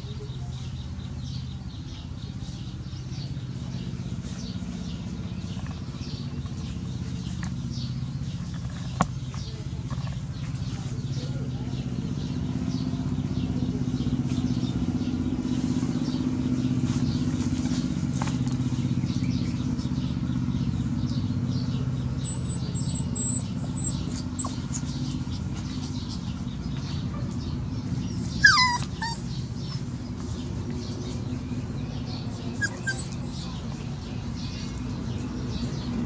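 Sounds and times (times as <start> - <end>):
puppy chewing cloth: 8.2 - 11.0
puppy whimper: 22.0 - 24.8, 28.0 - 29.9, 32.2 - 33.7.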